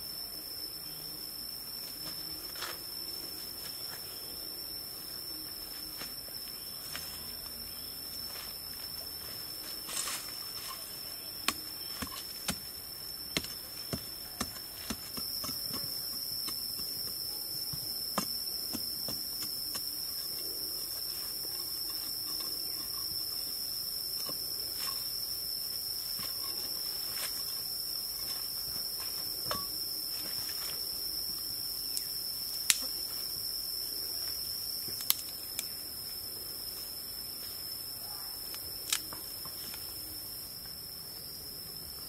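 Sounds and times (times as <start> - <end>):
high-pitched insect drone: 0.0 - 42.0.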